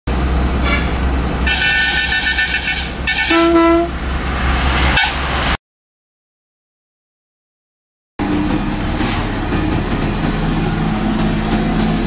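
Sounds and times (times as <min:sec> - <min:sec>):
diesel truck engine drone: 0:00.1 - 0:05.6, 0:08.2 - 0:12.0
truck air horns honking: 0:00.6 - 0:04.0, 0:04.9 - 0:05.3.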